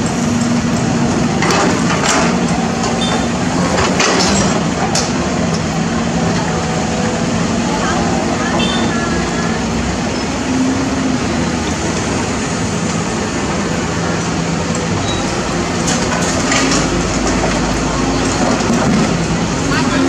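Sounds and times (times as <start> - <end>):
excavator diesel engine under load: 0.0 - 20.0
clatter and rattling: 0.3 - 6.5, 15.8 - 20.0.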